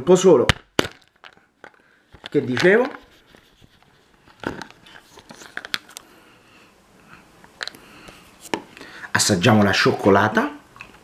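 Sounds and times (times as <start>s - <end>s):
chocolate shell cracking: 0.5s - 3.1s.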